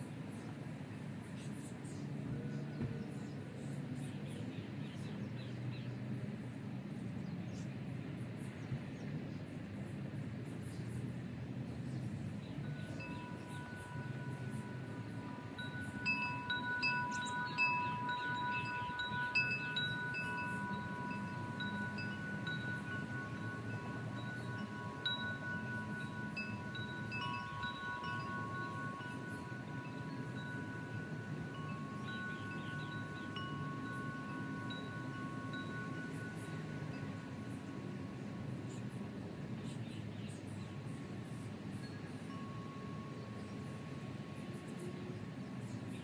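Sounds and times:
low steady rumble: 0:08.1 - 0:39.5
wind chimes ringing: 0:12.3 - 0:39.2, 0:41.5 - 0:45.5.

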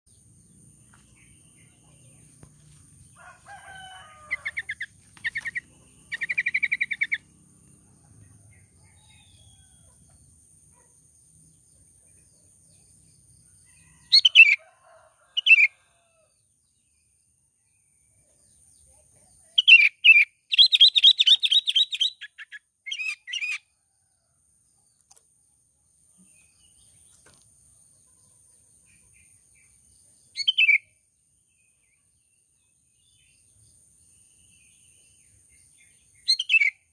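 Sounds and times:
bird chirping rapidly: 0:04.1 - 0:07.3, 0:14.1 - 0:14.6, 0:19.6 - 0:23.7, 0:30.4 - 0:30.9, 0:36.1 - 0:36.9.

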